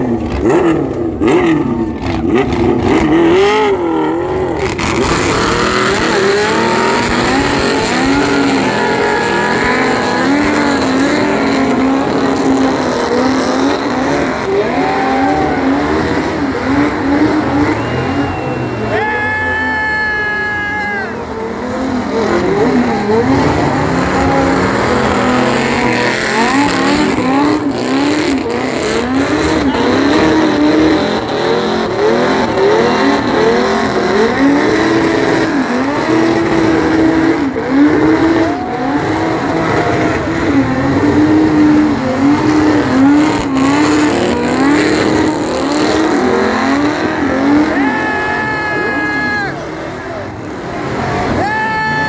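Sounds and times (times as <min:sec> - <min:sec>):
car engine revving: 0:00.0 - 0:51.6.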